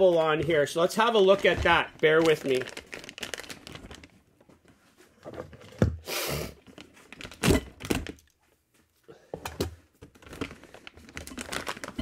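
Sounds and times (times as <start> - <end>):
plastic wrapping crinkling: 0.0 - 4.7, 6.6 - 8.3, 10.0 - 12.0.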